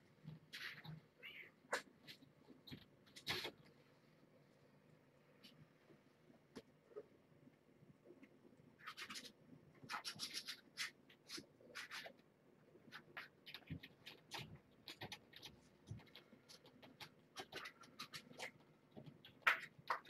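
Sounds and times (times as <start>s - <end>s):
kittens scratching and scampering: 0.2s - 3.7s, 8.8s - 12.2s, 12.8s - 20.0s
claw scrape: 8.8s - 12.2s.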